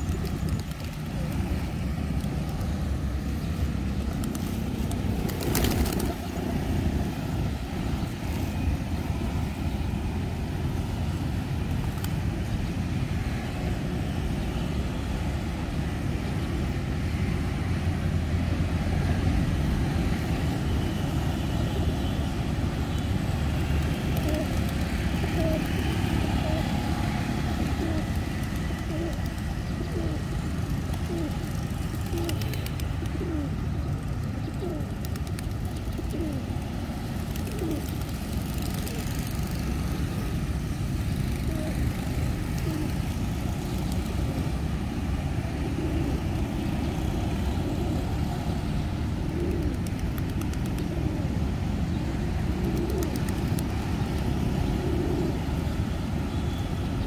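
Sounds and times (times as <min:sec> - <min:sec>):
pigeons cooing: 0:23.9 - 0:40.2, 0:41.2 - 0:55.8.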